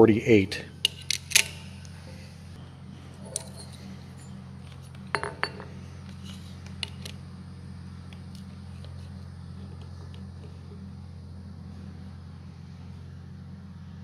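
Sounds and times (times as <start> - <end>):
steady low hum: 0.0 - 14.0
metal tools clinking: 3.2 - 4.3, 5.1 - 5.7.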